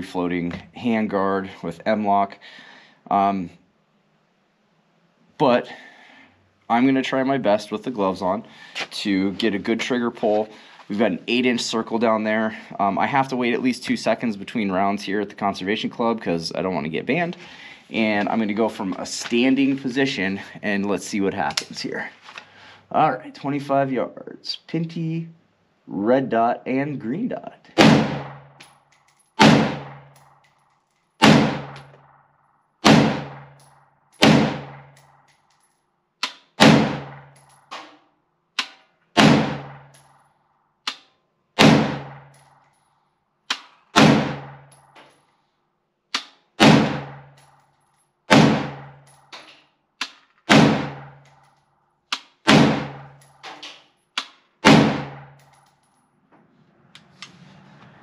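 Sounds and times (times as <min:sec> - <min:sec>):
rifle shots ringing off walls: 0:27.8 - 0:30.6, 0:31.2 - 0:35.3, 0:36.3 - 0:38.0, 0:38.6 - 0:40.2, 0:41.6 - 0:42.7, 0:43.5 - 0:45.0, 0:46.2 - 0:47.5, 0:48.3 - 0:49.4, 0:50.0 - 0:51.5, 0:52.2 - 0:55.4.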